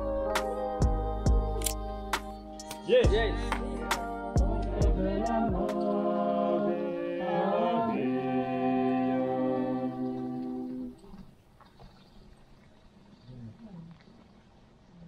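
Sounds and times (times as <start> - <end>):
choir singing in harmony: 0.0 - 11.0.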